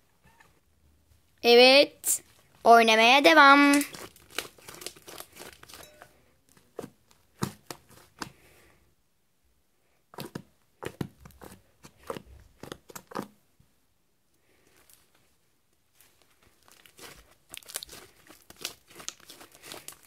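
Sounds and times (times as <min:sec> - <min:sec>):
slime crackling and popping: 0:03.5 - 0:05.9, 0:16.1 - 0:20.0.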